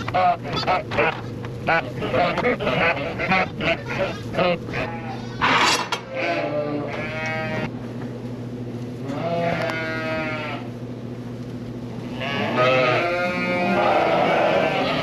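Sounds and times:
low background hum: 0.0 - 15.0
sheep bleating: 1.7 - 7.7, 9.1 - 10.7, 12.2 - 15.0.

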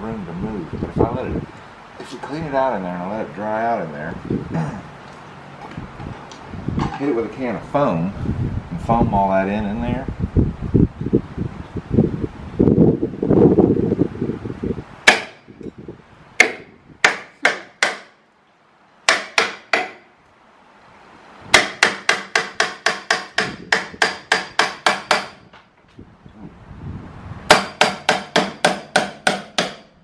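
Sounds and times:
hammer striking metal tool: 21.6 - 25.4.

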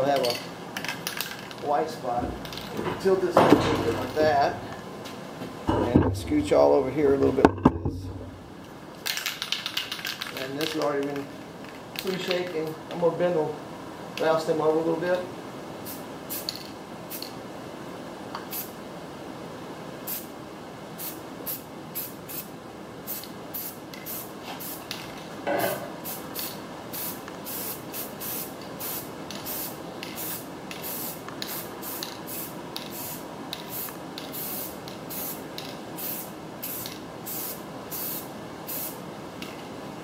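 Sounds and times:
spray can hissing bursts: 15.9 - 17.3, 20.1 - 20.3, 23.1 - 25.0, 26.0 - 35.4, 36.0 - 39.0.

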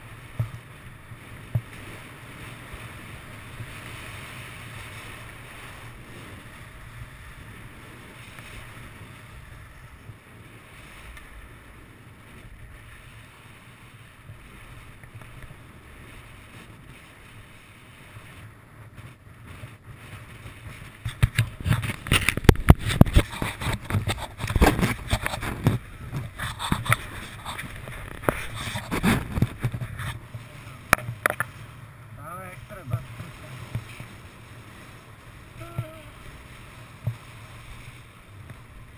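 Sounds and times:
skis rushing on snow: 0.0 - 30.9
skis scraping and knocking: 0.0 - 31.6
wind on microphone: 0.0 - 38.9.

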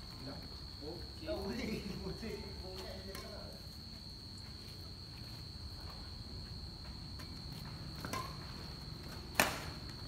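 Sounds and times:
crickets trilling: 0.0 - 10.0
racket hitting shuttlecock: 9.3 - 9.8.

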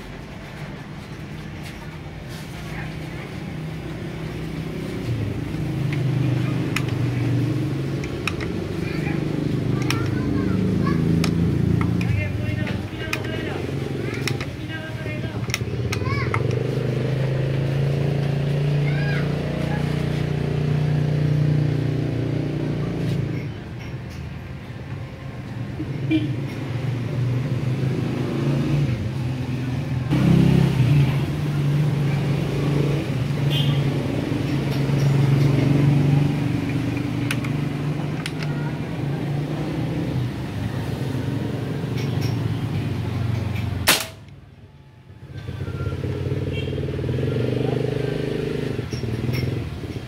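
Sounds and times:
engine running with low hum: 2.3 - 50.0
air rifle shot: 43.8 - 44.2.

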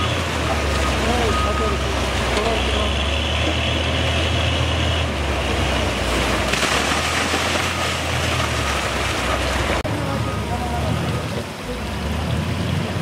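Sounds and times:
diesel engine running: 0.0 - 13.0.

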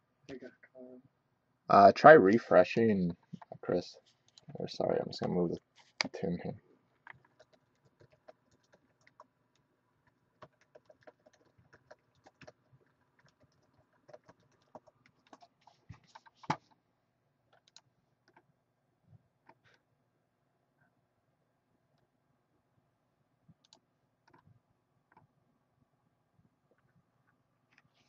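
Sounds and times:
typing on computer keyboard: 7.0 - 9.3, 10.4 - 16.7, 17.5 - 18.4, 23.6 - 24.5.

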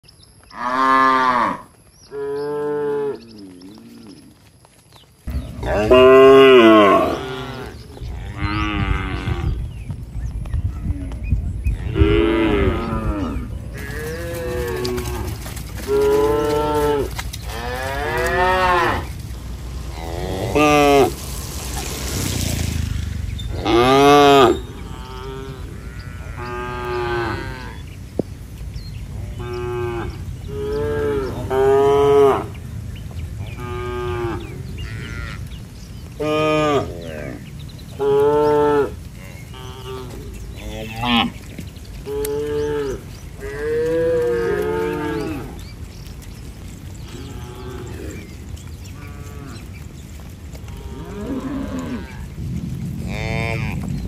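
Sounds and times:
cattle mooing: 5.6 - 9.6, 11.8 - 19.1, 19.9 - 21.2, 23.5 - 27.8, 33.6 - 35.5, 38.0 - 45.6, 50.7 - 52.3, 53.0 - 54.0
low background rumble: 51.9 - 54.0.

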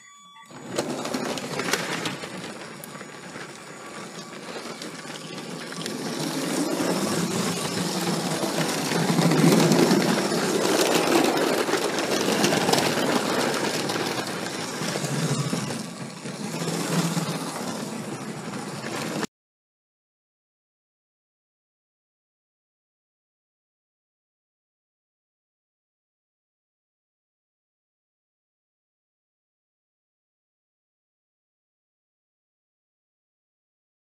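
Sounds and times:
plastic wheels clicking on rails: 0.4 - 19.3
toy train motor whirring: 0.4 - 19.3.

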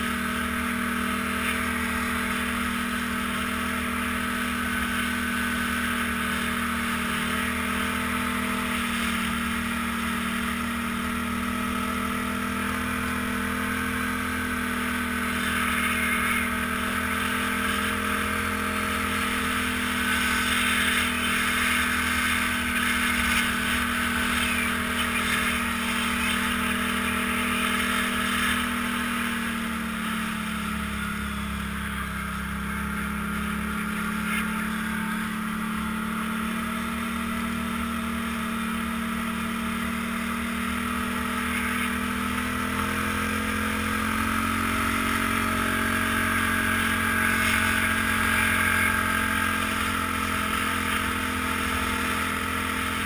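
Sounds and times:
atv engine running: 0.0 - 53.0.

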